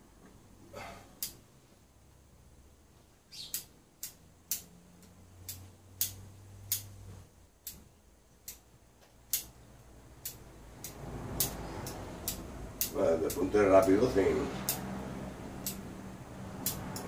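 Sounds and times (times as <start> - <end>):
pruning shears snipping twigs: 3.5 - 7.0, 10.2 - 15.9, 16.5 - 17.0.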